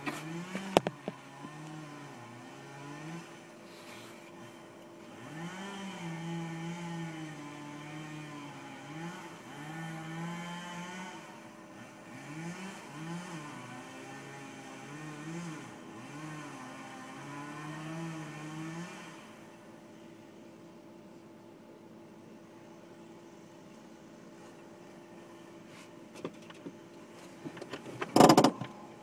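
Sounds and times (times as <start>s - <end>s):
chainsaw revving while cutting: 0.0s - 19.7s
sharp knocks: 28.0s - 28.7s.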